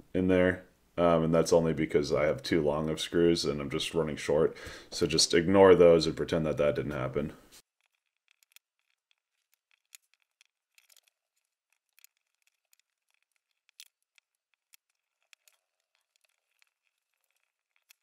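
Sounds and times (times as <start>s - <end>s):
screwdriver clicks and ticks: 7.8s - 18.0s.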